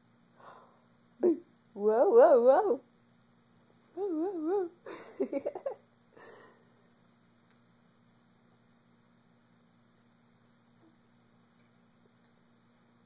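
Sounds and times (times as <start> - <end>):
low electrical hum: 0.0 - 13.0
soft breathy sound: 0.3 - 1.0.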